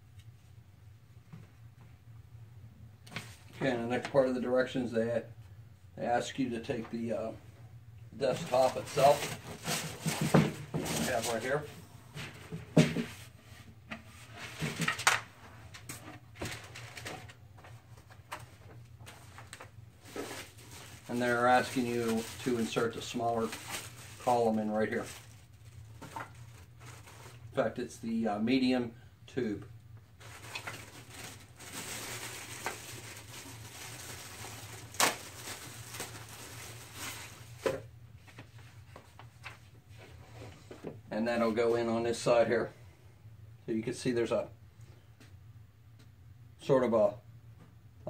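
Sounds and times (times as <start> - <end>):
packaging rustling: 8.3 - 11.7, 14.6 - 27.5, 30.2 - 39.6.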